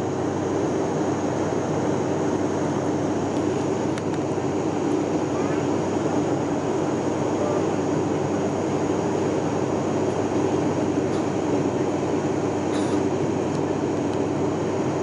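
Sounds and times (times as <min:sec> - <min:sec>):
airliner cabin engine noise: 0:00.0 - 0:15.0.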